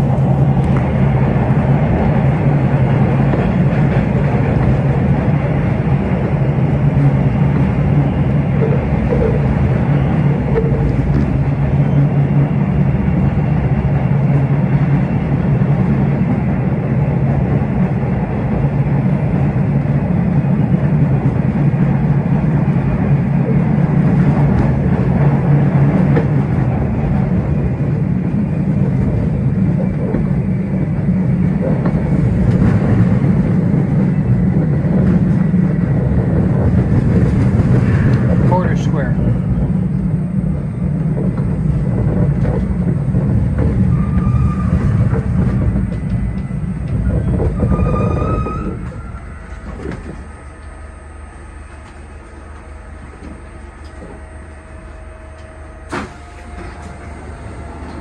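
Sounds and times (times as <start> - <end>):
subway train wheels rumbling: 0.0 - 58.0.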